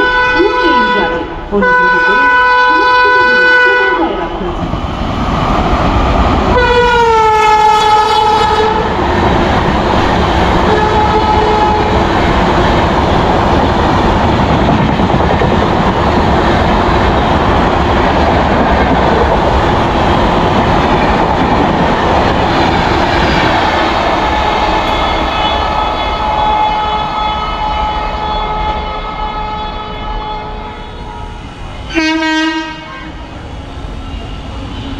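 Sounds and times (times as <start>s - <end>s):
train horn: 0.0s - 4.3s, 6.5s - 9.0s, 10.6s - 12.1s, 24.3s - 33.3s
train coaches clickety-clack: 0.0s - 30.6s.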